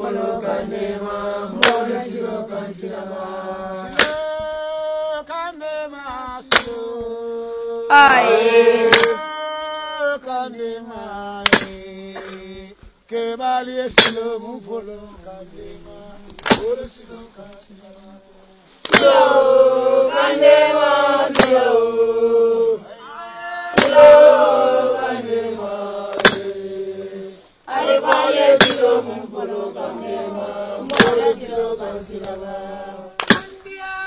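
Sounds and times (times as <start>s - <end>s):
sharp percussive strike: 0.0s - 2.2s, 3.8s - 5.0s, 6.3s - 7.2s, 8.7s - 9.5s, 11.0s - 12.7s, 13.9s - 20.4s, 21.2s - 21.9s, 23.8s - 25.3s, 26.1s - 26.9s, 27.9s - 29.1s, 30.0s - 34.0s
group of voices chanting: 0.0s - 4.5s, 7.9s - 9.4s, 18.3s - 34.0s.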